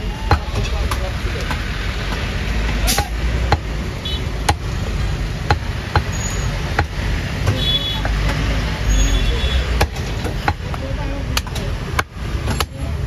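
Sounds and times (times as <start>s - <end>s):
low traffic rumble: 0.0s - 13.0s
cleaver chopping on wooden block: 4.4s - 4.7s, 5.4s - 6.1s, 6.7s - 8.4s, 9.7s - 12.8s.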